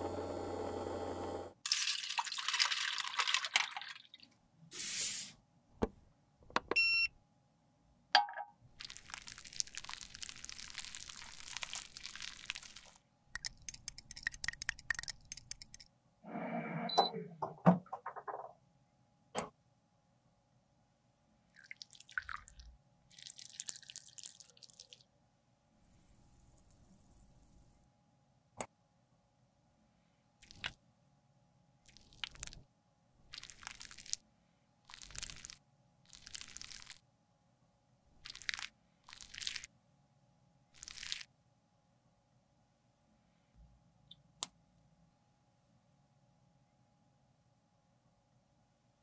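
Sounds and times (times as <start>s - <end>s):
liquid noises in cleaner bath: 1.7s - 5.2s, 8.8s - 13.0s, 21.6s - 25.0s, 33.3s - 34.2s, 34.9s - 37.0s, 38.2s - 39.7s, 40.7s - 41.3s.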